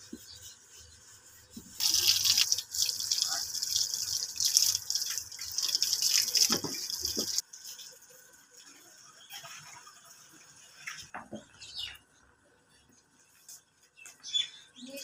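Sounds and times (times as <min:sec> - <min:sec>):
tap water running and splashing: 0:01.6 - 0:08.0.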